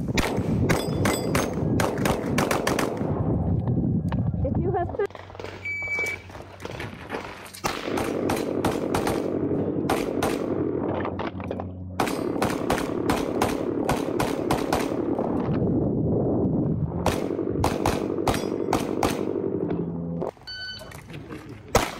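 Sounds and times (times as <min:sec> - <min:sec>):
rapid pistol fire: 0:00.1 - 0:03.0, 0:07.6 - 0:10.8, 0:12.0 - 0:15.2, 0:17.0 - 0:19.5
shot timer beep: 0:05.6 - 0:06.2, 0:20.4 - 0:20.9.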